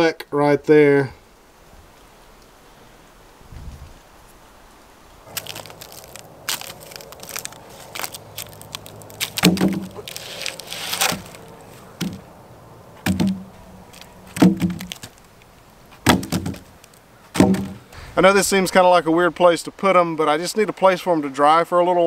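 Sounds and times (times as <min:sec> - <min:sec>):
wooden cracks and rustling: 0:05.3 - 0:12.3, 0:13.0 - 0:18.1
board scraping: 0:09.2 - 0:12.2
wooden boards knocking: 0:09.4 - 0:10.0, 0:12.0 - 0:12.2, 0:13.0 - 0:13.5, 0:14.3 - 0:15.1, 0:16.0 - 0:16.7, 0:17.3 - 0:17.9.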